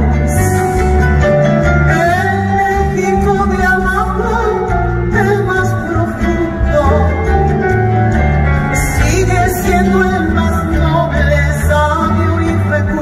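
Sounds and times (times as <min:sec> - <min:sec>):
bass line: 0:00.0 - 0:13.0
music with singing: 0:00.0 - 0:13.0.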